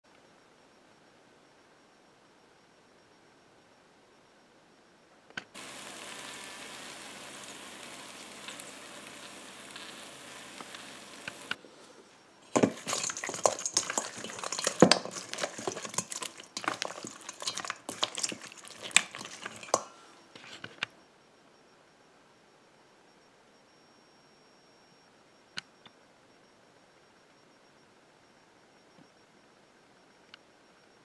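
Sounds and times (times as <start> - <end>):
sizzling hiss: 5.6 - 11.6
spatula tossing wings in metal bowl: 12.5 - 20.0.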